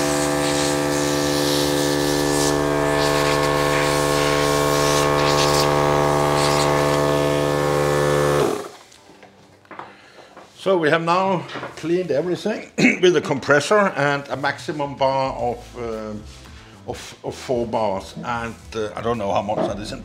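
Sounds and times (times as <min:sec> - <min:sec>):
compressed air hissing from hose: 0:00.0 - 0:07.6
air compressor motor hum: 0:00.0 - 0:08.8.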